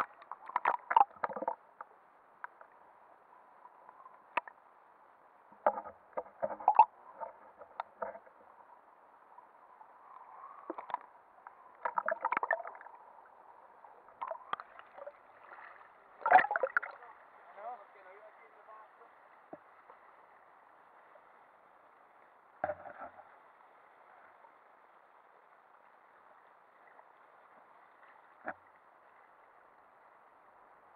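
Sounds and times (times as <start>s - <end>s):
water clicks against camera case: 0.0s - 2.7s.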